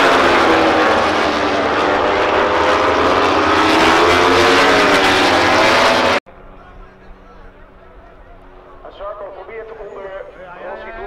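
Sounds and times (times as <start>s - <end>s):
racing motorcycles passing: 0.0s - 6.7s.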